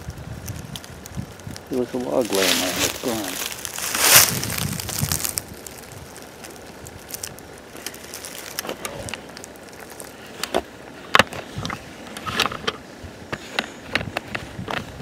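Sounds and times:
footsteps crunching through dry leaves: 0:00.0 - 0:10.8.

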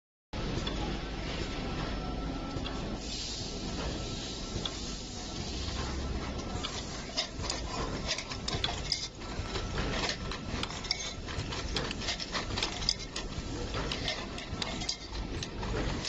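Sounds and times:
machine clattering clicks and knocks: 0:05.8 - 0:16.0.

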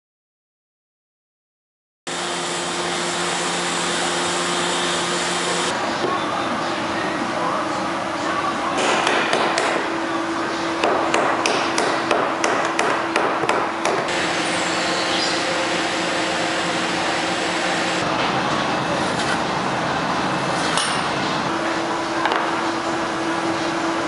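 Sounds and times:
workshop noise with low hum: 0:02.1 - 0:24.0
mallet striking a chisel: 0:08.8 - 0:09.8, 0:10.8 - 0:14.1.

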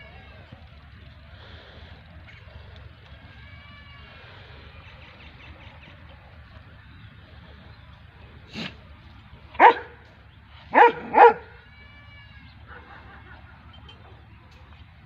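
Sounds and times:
dog barking: 0:09.6 - 0:10.0, 0:10.7 - 0:11.5.

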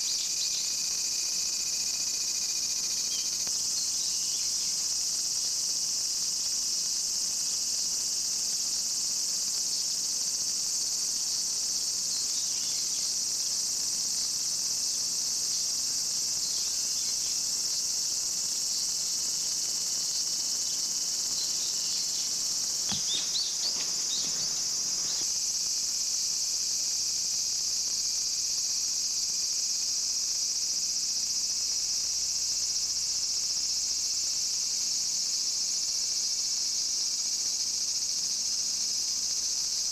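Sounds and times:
cicadas droning: 0:00.0 - 0:39.9
brief knock: 0:22.9 - 0:24.3.

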